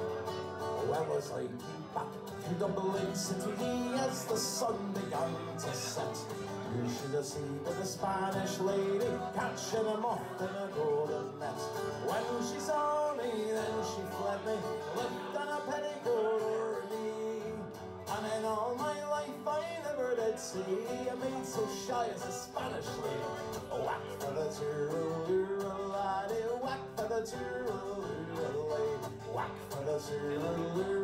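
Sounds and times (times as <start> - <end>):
guitar background music: 0.0 - 31.0.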